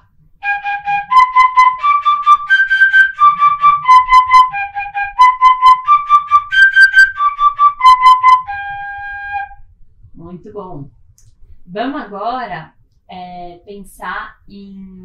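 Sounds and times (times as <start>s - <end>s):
fife playing arpeggio: 0.4s - 9.6s.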